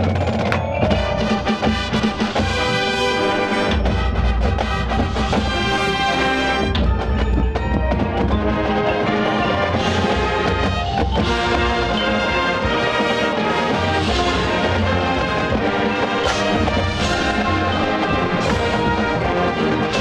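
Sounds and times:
drums and percussion: 0.0s - 20.0s
marching band brass: 0.0s - 20.0s.

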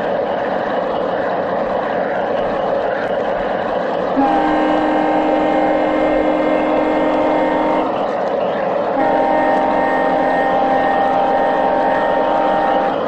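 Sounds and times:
locomotive running noise: 0.0s - 13.0s
model locomotive horn chord: 4.2s - 8.0s, 9.0s - 13.0s.

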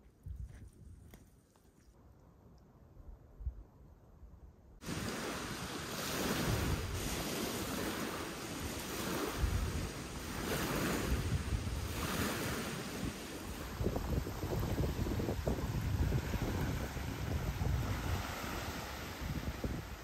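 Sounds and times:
waves breaking on pebble shore: 4.8s - 20.0s
wind gusting on microphone: 4.8s - 20.0s.

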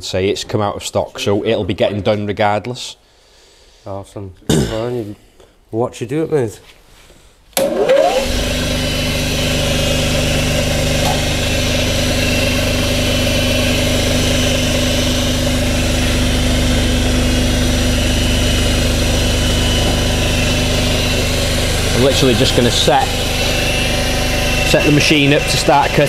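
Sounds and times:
machine motor whining and humming: 7.6s - 26.0s.

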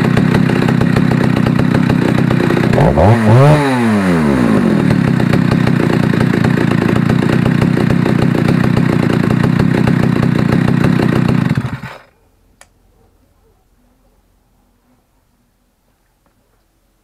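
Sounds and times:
chainsaw idling: 0.0s - 12.1s.

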